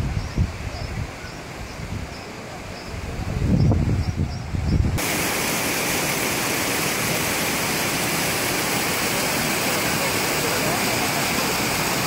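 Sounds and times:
wind rumble on microphone: 0.0 - 5.0
stream rushing over rocks: 5.0 - 12.0.

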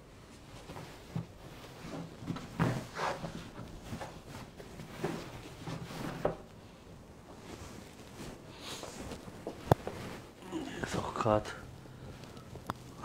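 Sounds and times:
blanket rustling and knocking: 0.2 - 10.4.

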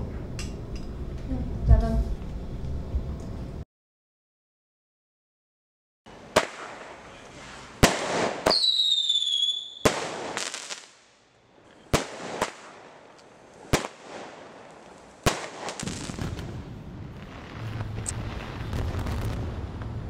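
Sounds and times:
fireworks bangs: 6.3 - 11.1, 11.9 - 20.0
firework falling whistle: 6.4 - 10.6
low rumble: 16.2 - 20.0.

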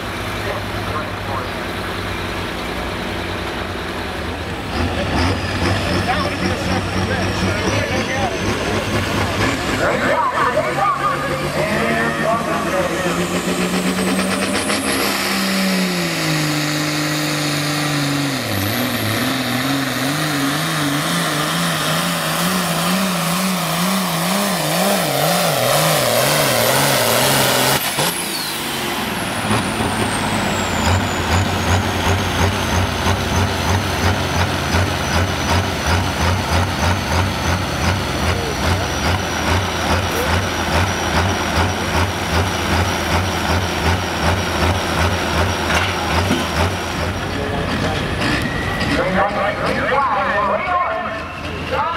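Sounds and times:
tractor diesel engine revving: 0.0 - 51.9.

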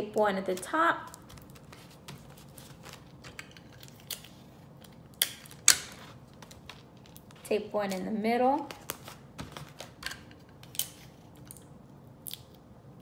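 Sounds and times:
paper rustling and tapping: 0.5 - 4.1, 5.6 - 8.0, 8.6 - 10.3.

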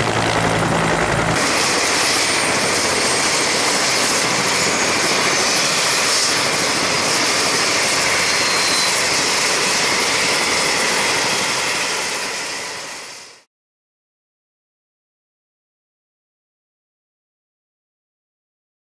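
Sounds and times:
helicopter turbine and rotor: 0.0 - 13.5.

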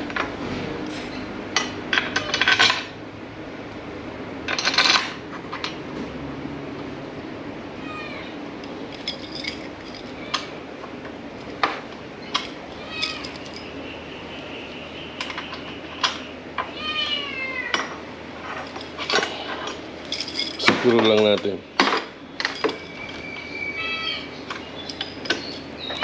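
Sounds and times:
metal keys clinking: 8.5 - 10.6, 11.3 - 13.8, 18.4 - 26.0.

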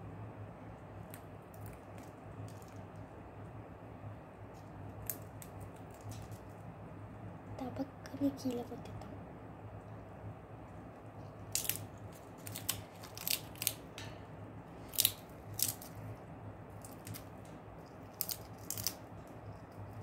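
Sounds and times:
low steady hum: 0.0 - 20.0
parrot cracking peanut: 0.9 - 3.1, 4.6 - 6.6, 11.4 - 14.2, 14.8 - 16.0, 16.7 - 20.0.

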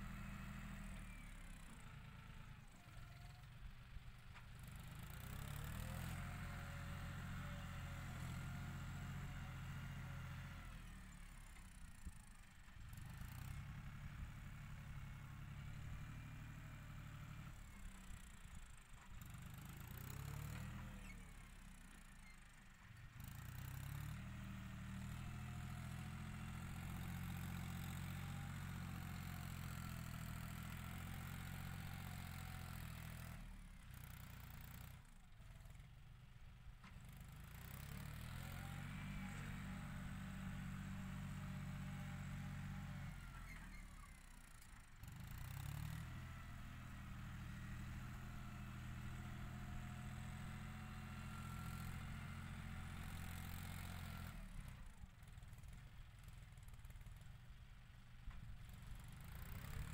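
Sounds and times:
tractor diesel engine droning: 0.0 - 11.6, 12.7 - 18.1, 36.8 - 44.2, 45.0 - 55.5.

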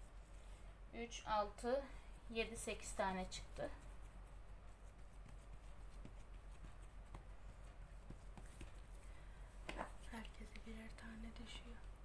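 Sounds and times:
hands patting dough: 2.8 - 10.8.

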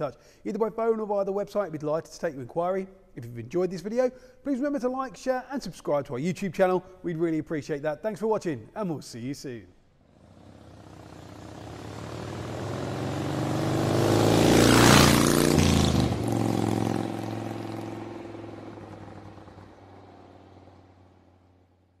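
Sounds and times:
passing vehicle engine: 10.1 - 21.8.

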